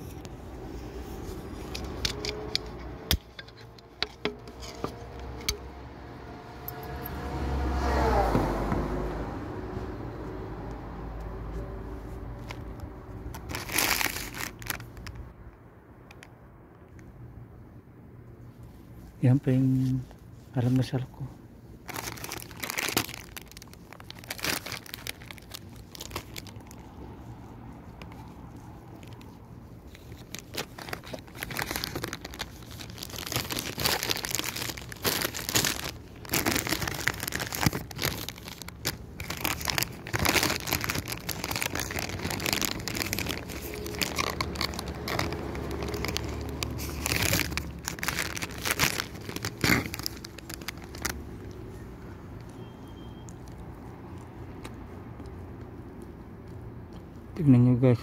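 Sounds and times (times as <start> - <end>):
plastic wrapper crinkling: 12.4 - 15.3, 21.8 - 27.1, 27.9 - 51.8.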